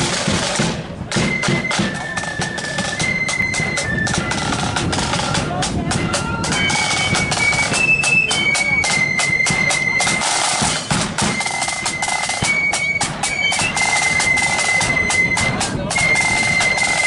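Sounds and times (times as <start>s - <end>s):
bass drum beating: 0.0s - 12.5s
shrill flutes playing melody: 0.0s - 17.0s
snare drums: 0.0s - 17.0s.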